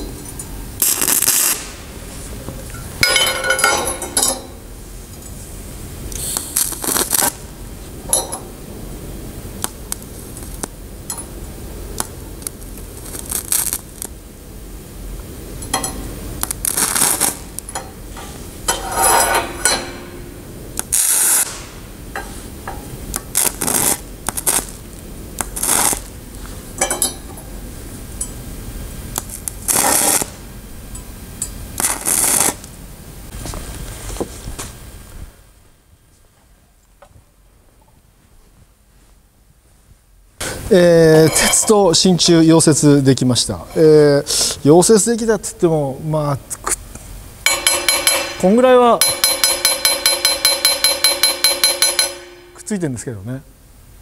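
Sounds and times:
welding arc crackling and hissing: 0:00.0 - 0:35.5.

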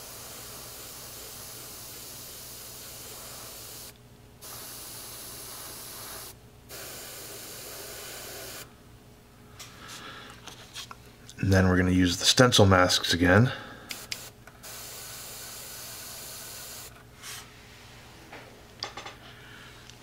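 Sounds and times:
airbrush spraying hiss: 0:00.0 - 0:08.7, 0:13.9 - 0:17.0
faint handling sounds: 0:09.6 - 0:11.4.

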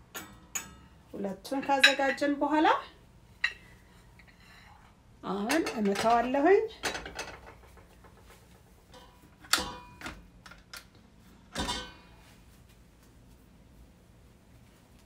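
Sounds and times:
kitchen bowls clinking: 0:05.3 - 0:10.7, 0:11.5 - 0:12.1.

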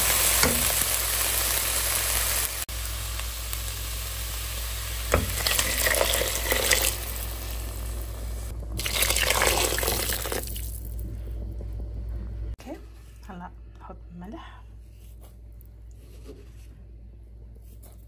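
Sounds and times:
vegetables sizzling in a pot: 0:00.0 - 0:11.0.

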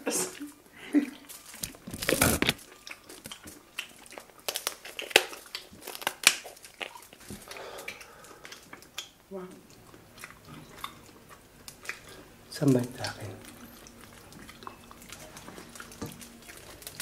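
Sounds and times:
shell cracking with shears: 0:01.4 - 0:09.2.

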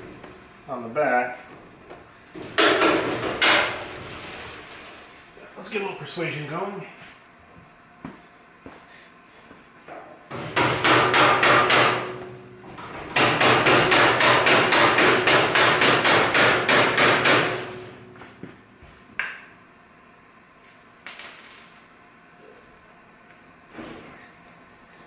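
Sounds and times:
light metallic clinks: 0:20.4 - 0:22.0.

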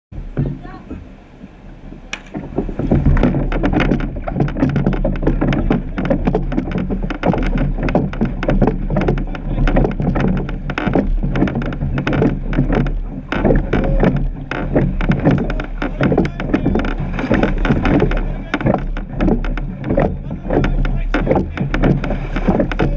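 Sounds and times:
oars knocking in rowlocks: 0:00.1 - 0:22.9
water rushing and splashing: 0:00.1 - 0:22.9.

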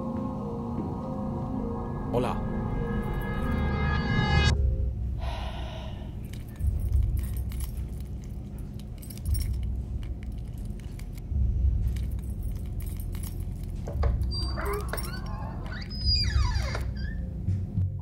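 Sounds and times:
keys jangling: 0:06.1 - 0:16.2.

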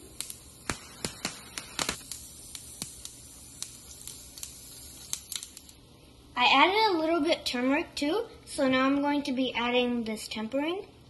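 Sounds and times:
seeds sizzling in hot oil: 0:00.0 - 0:06.1.

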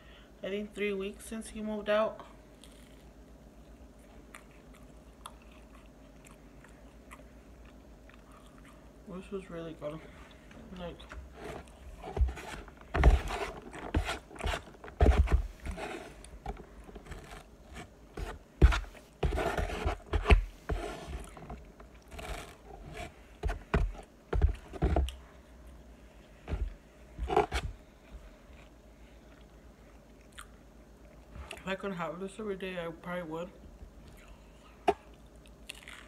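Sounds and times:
biting fried food: 0:35.5 - 0:36.0.

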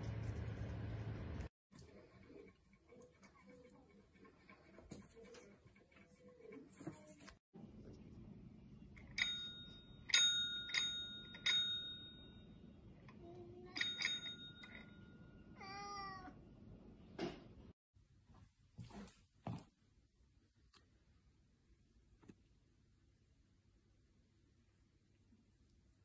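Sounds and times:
service bell dinging: 0:09.2 - 0:12.5, 0:13.8 - 0:15.3.

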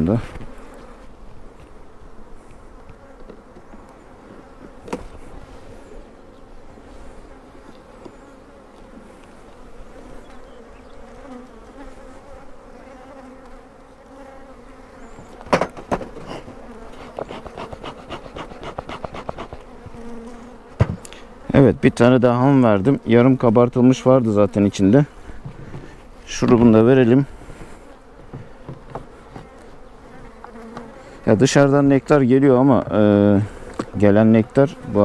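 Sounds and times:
honeybees humming: 0:00.0 - 0:35.0
wooden hive frames knocking: 0:15.4 - 0:20.1, 0:20.8 - 0:21.1.

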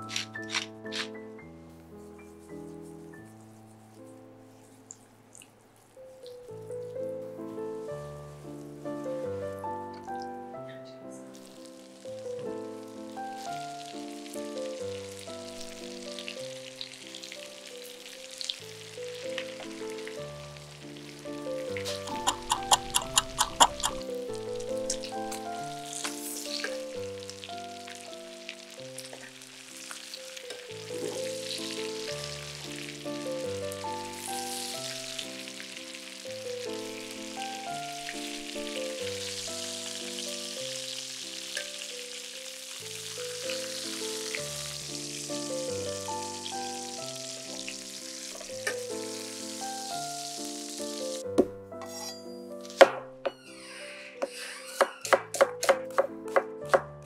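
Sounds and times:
instrumental background music: 0:00.0 - 0:05.0, 0:06.0 - 0:57.0
food sizzling in a frying pan: 0:11.2 - 0:51.3.

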